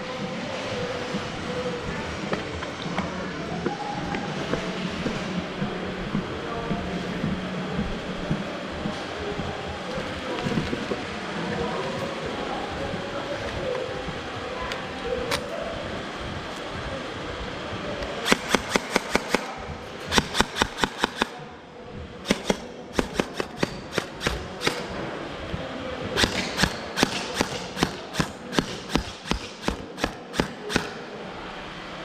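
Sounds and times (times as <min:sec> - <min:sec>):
gel blasters firing: 0:18.2 - 0:21.4, 0:22.3 - 0:25.0.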